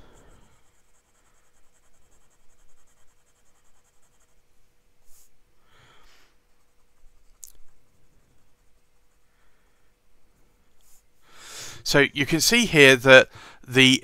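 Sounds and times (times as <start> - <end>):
pen nib scratching on paper: 0.2 - 4.4, 6.6 - 9.2.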